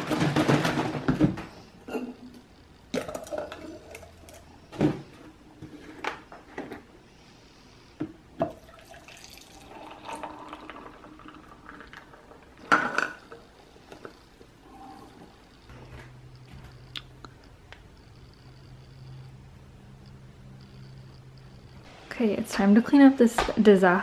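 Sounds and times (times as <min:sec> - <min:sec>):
liquid pouring into steel tumbler: 0:08.5 - 0:13.4.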